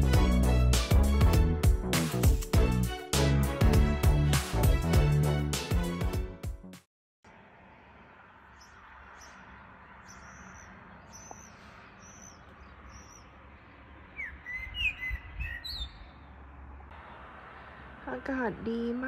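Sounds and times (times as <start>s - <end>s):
small birds singing: 8.4s - 17.3s.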